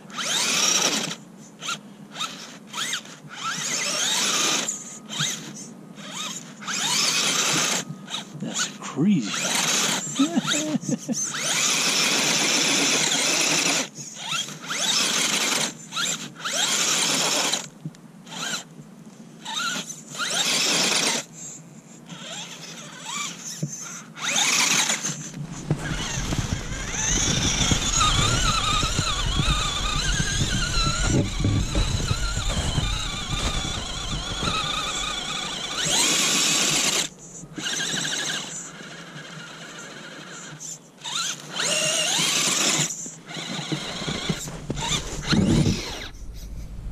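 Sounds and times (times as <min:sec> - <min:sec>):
rc car motor whining: 0:00.0 - 0:18.7, 0:19.4 - 0:46.9
low rumble: 0:44.4 - 0:46.9.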